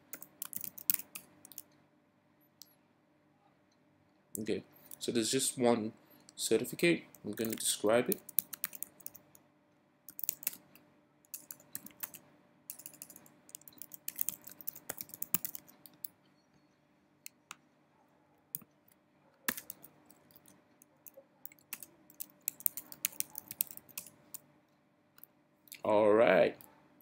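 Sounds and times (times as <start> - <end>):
keyboard typing: 0.0 - 1.7, 7.1 - 9.3, 10.1 - 10.6, 11.3 - 16.1, 19.4 - 24.4.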